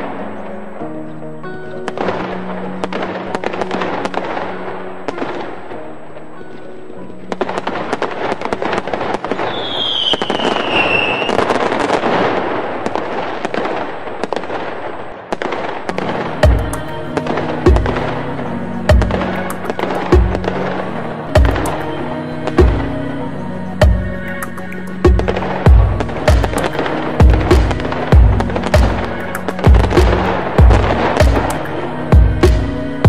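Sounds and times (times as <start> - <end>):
background music: 0.0 - 33.0
firecrackers crackling bangs: 7.2 - 23.0, 23.9 - 33.0
high falling whistle: 9.4 - 11.6.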